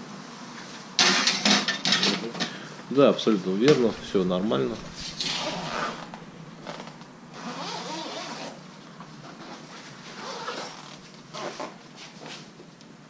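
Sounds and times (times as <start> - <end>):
cloth rustling: 3.9 - 8.6
zip being run: 5.0 - 6.1.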